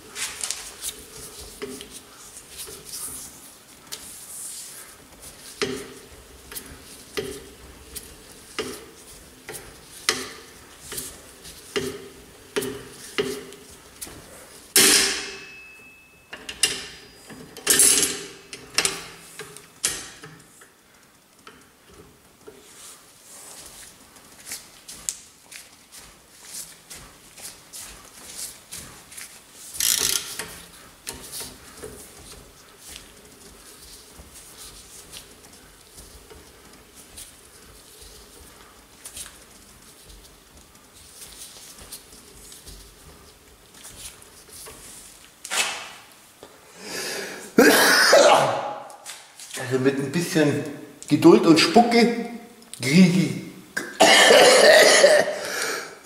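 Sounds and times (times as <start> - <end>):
metallic clicks and clanks: 14.7 - 22.5.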